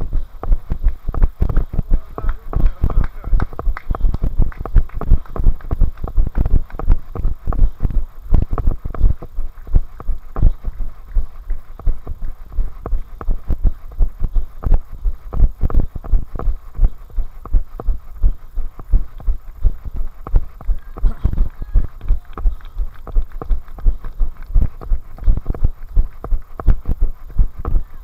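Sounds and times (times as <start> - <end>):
running footsteps on tarmac: 0.0 - 28.0.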